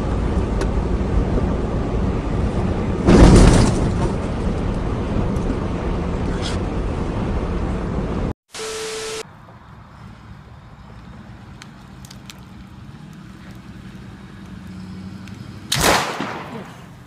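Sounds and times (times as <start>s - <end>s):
loud crash: 3.0s - 4.4s
static hiss with tone: 8.5s - 9.2s.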